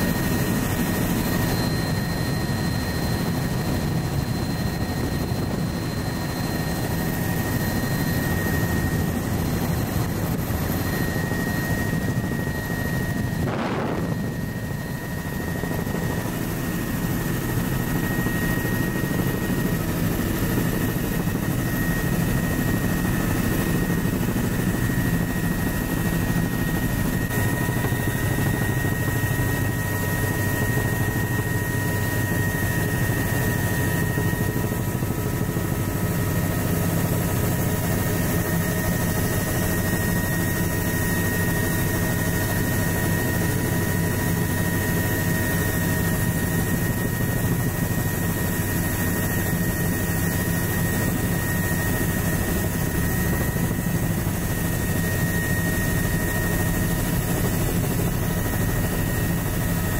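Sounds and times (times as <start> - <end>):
high-pitched whine: 0.0 - 35.5
helicopter rotor and engine noise: 0.0 - 59.9.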